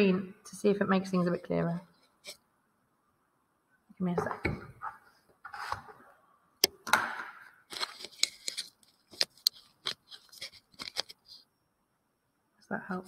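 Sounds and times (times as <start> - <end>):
camera handling clicks and scrapes: 7.7 - 11.4.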